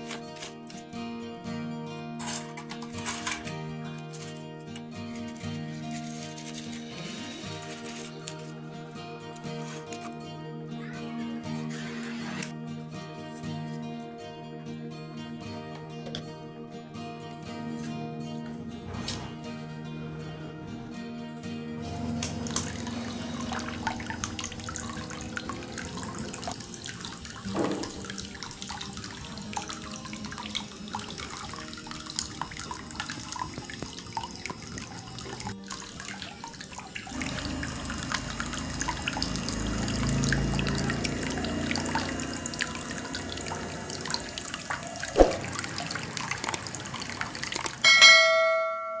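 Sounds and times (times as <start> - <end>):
fountain water trickling: 21.8 - 48.0
short ringing chime: 47.8 - 49.0.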